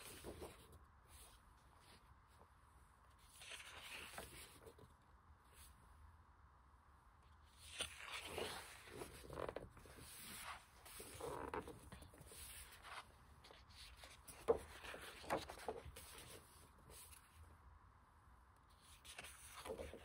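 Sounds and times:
book pages turning: 0.0s - 2.2s, 3.2s - 5.0s, 7.4s - 17.4s, 18.8s - 20.0s
paper rustling and sliding: 0.0s - 2.4s, 3.2s - 4.9s, 7.5s - 17.4s, 18.8s - 20.0s.

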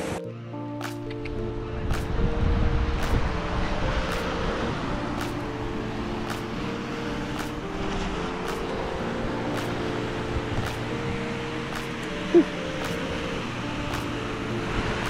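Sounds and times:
background music: 0.0s - 15.0s
wind rumble on microphone: 1.5s - 6.4s.

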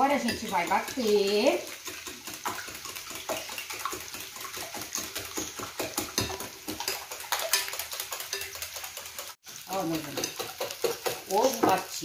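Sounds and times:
whisk clicking against glass bowl: 0.0s - 9.4s
potatoes frying in a pan: 0.0s - 12.0s.

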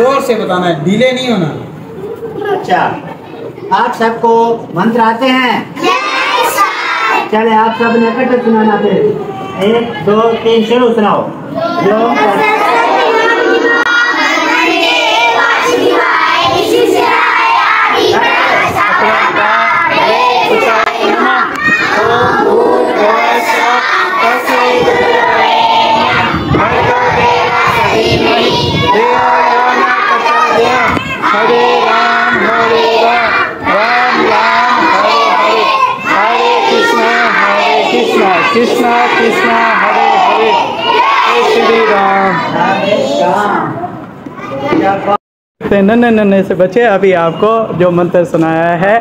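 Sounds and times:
children chanting: 5.8s - 7.3s, 11.6s - 43.5s.

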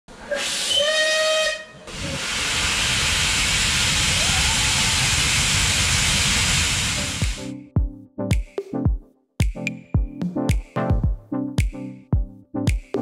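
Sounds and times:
steam hissing: 0.1s - 7.5s
steam locomotive whistle: 0.2s - 7.3s.

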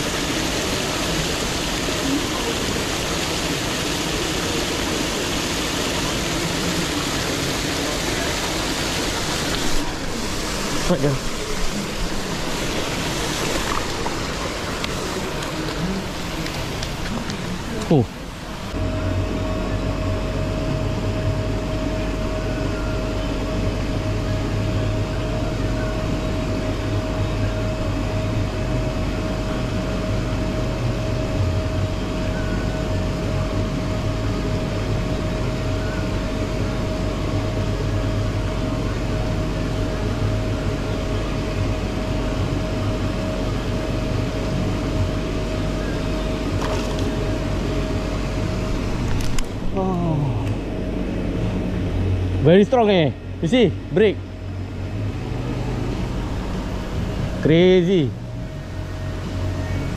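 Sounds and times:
water churning: 0.0s - 18.8s
aerators humming and whining: 0.0s - 59.9s.

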